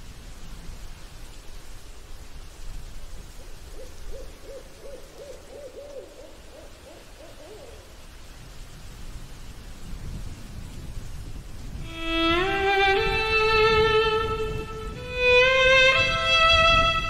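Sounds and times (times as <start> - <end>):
owl hooting: 3.7 - 8.0
low rumbling noise: 11.4 - 17.0.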